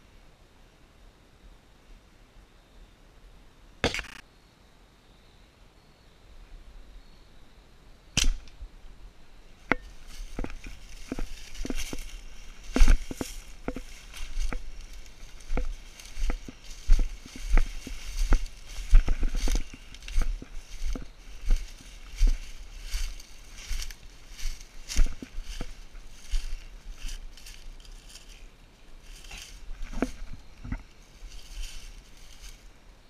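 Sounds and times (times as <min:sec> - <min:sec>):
sharp snap: 0:03.8 - 0:04.2, 0:08.2 - 0:08.6
footsteps crunching through dry leaves: 0:09.7 - 0:32.7.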